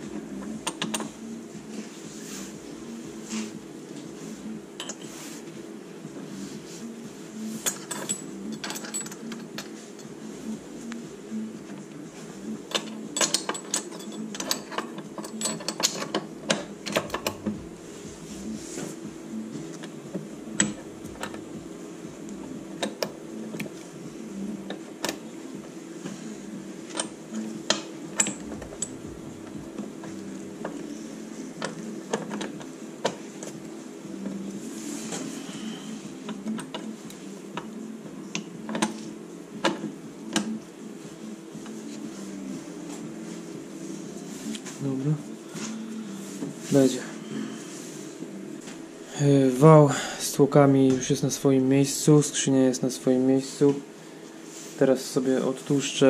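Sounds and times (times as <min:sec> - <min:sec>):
steady low hum: 0:00.0 - 0:56.0
metal parts clicking and clinking: 0:07.6 - 0:09.7, 0:12.7 - 0:17.5.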